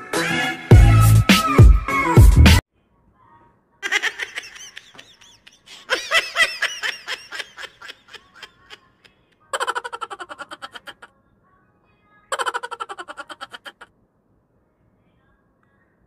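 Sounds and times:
woman laughing hard: 3.8 - 9.0, 9.6 - 11.1, 12.4 - 13.9.

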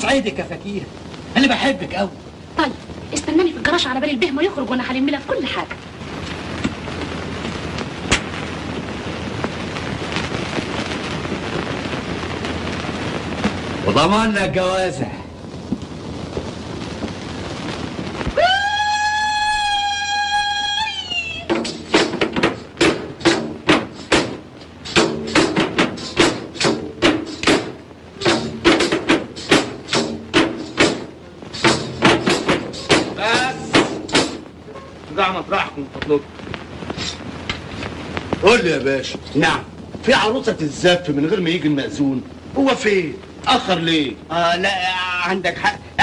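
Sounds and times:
faint crackles: 0.0 - 46.0
old film soundtrack hiss: 0.0 - 46.0
sharp pop: 7.4 - 10.7, 21.5 - 34.9, 36.0 - 38.4
music with sharp percussive beats: 21.5 - 34.5.

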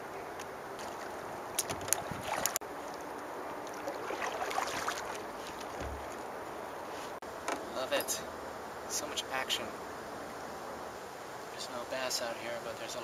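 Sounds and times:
water lapping around a canoe: 0.8 - 6.3.

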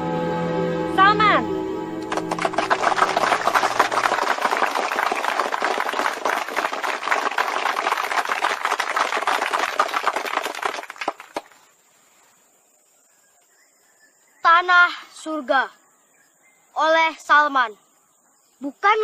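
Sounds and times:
audience applause: 2.0 - 11.6.

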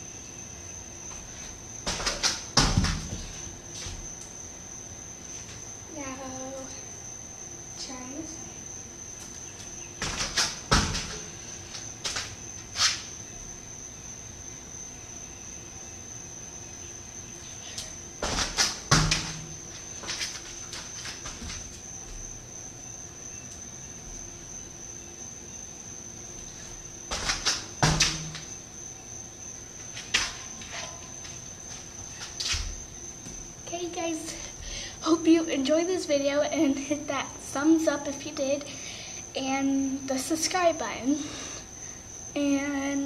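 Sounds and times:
bare feet thumping on concrete: 1.1 - 4.1, 9.6 - 11.4, 18.2 - 22.4, 26.4 - 28.6, 29.8 - 33.5
landing thud: 1.9 - 4.1, 10.0 - 11.4, 18.2 - 20.2, 27.1 - 28.6
feet scuffing: 9.3 - 13.1, 18.2 - 22.3, 26.4 - 28.5, 29.8 - 33.5.

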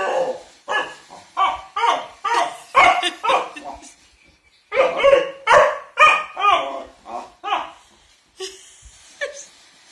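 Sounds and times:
puppy barking and yowling: 0.0 - 4.0, 4.7 - 7.7.

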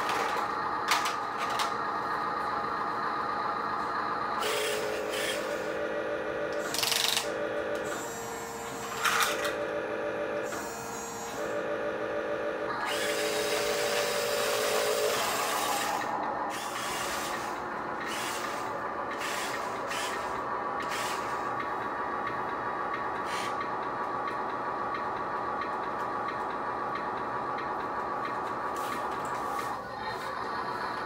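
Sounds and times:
toy truck electric motor whining: 4.4 - 5.8, 6.5 - 11.6, 12.6 - 21.6, 23.2 - 23.7.

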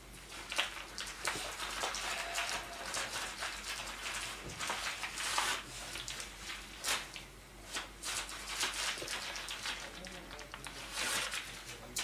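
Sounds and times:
sharp paper crackle: 7.8 - 12.0.

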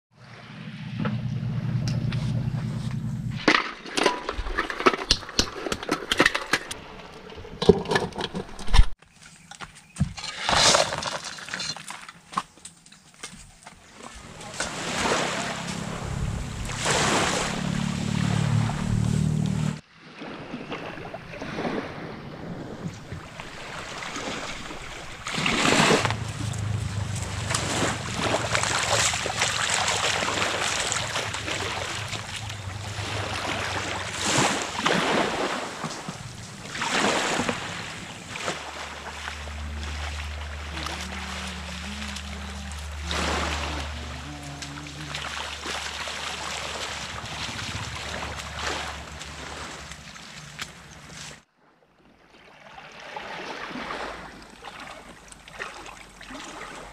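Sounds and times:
steady low hum: 0.3 - 3.5, 25.8 - 35.0, 35.6 - 51.1
feet splashing in shallow water: 13.2 - 56.9
small waves washing ashore: 13.8 - 56.9
wind buffeting microphone: 46.5 - 49.9.

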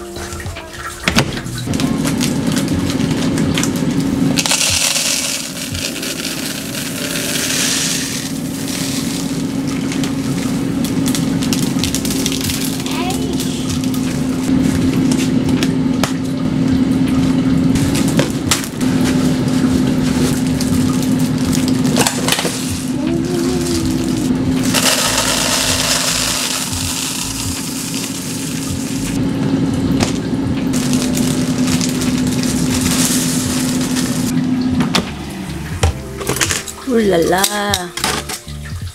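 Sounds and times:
low hum: 1.4 - 37.2
seeds rattling into plastic canister: 4.4 - 8.2, 24.7 - 28.9
plastic bags crinkling: 17.9 - 29.2, 30.7 - 34.4.

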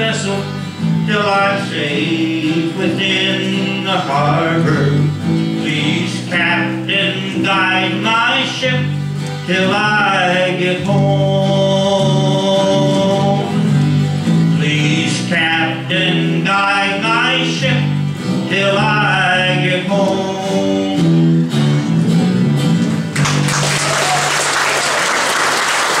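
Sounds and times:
man singing: 0.0 - 21.5
acoustic guitar and electric bass: 0.0 - 24.2
audience applause: 23.1 - 26.0.

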